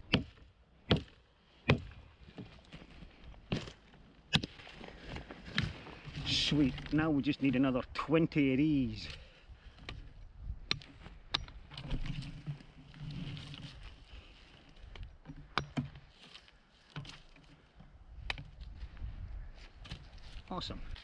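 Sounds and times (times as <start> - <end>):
rustling and crunching: 1.8 - 7.3, 10.8 - 15.2.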